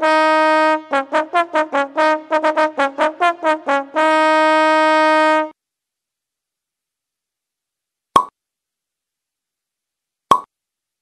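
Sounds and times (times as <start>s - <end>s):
trumpet fanfare: 0.0s - 5.6s.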